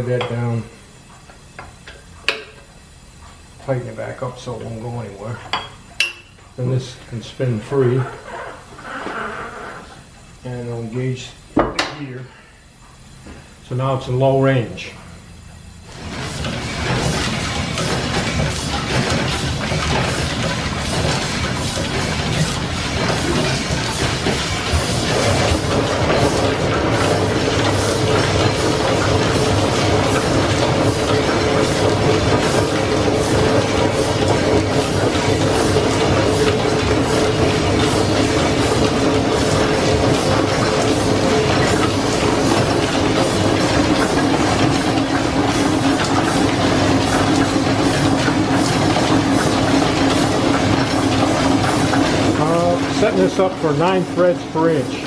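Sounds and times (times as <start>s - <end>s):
steady machine hum: 0.0s - 55.0s
drive belts and pulleys clattering: 13.7s - 55.0s.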